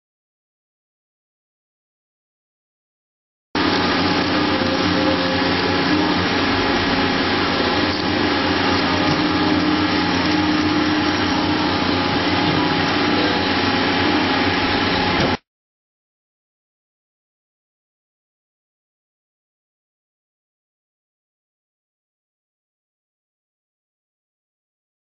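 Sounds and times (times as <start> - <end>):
milling machine cutting metal: 3.6 - 15.4
spindle hum: 3.6 - 15.4.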